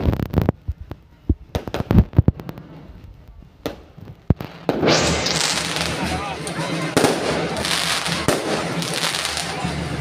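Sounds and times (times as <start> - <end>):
continuous rush of noise: 0.0 - 10.0
fireworks bangs: 1.4 - 2.9, 3.6 - 6.2, 6.8 - 9.7.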